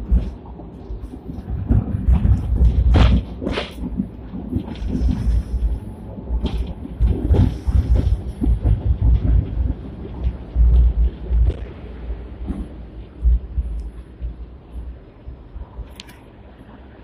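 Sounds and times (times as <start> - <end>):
tram knocks and rattles: 0.0 - 17.0
tram rumbling on track: 0.0 - 17.0.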